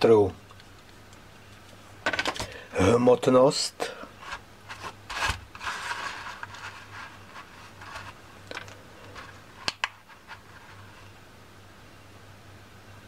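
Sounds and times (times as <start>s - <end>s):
handling rustling: 4.2s - 11.2s.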